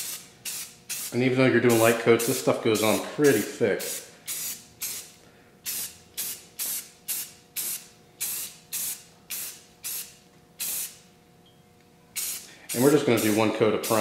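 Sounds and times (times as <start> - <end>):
aerosol can spraying: 0.0 - 11.0, 12.2 - 14.0.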